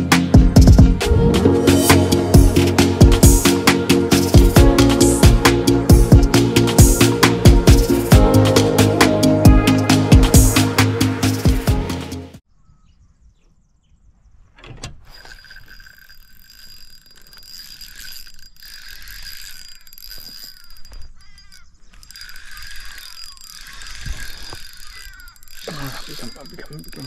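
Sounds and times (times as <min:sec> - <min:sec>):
fishing reel clicking: 0:01.7 - 0:11.4, 0:15.0 - 0:27.0
thin ringing tone: 0:15.0 - 0:27.0.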